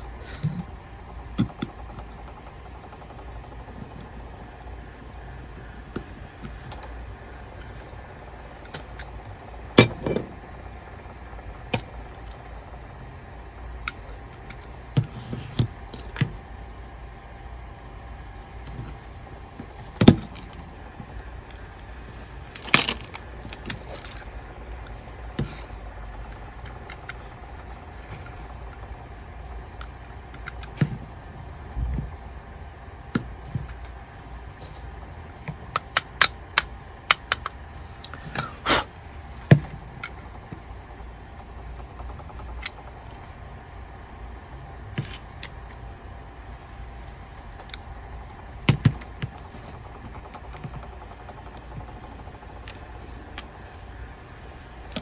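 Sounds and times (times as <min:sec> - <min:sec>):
steady background hum: 0:00.0 - 0:55.0
small metal and plastic clicks: 0:35.4 - 0:38.2.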